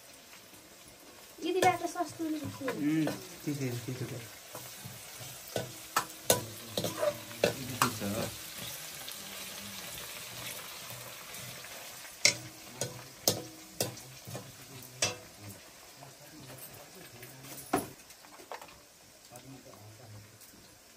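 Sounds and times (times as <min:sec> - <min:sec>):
mushrooms sizzling in pan: 0:00.0 - 0:20.9
metal ladle scraping iron pan: 0:04.5 - 0:08.8.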